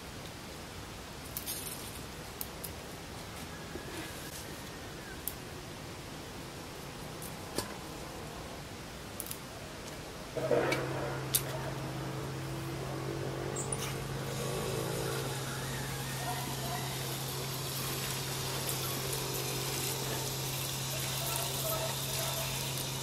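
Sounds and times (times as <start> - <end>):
low motor hum: 10.4 - 23.0.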